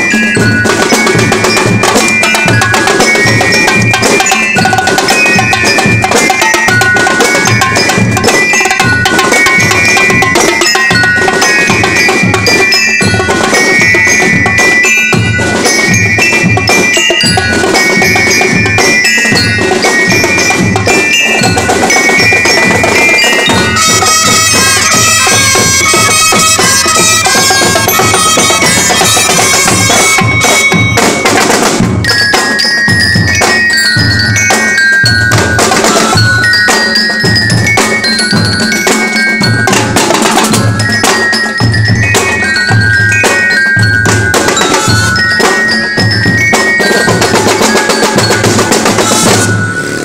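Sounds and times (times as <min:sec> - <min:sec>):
marching drum line beat: 0:00.0 - 0:50.0
bugle notes: 0:20.3 - 0:31.6.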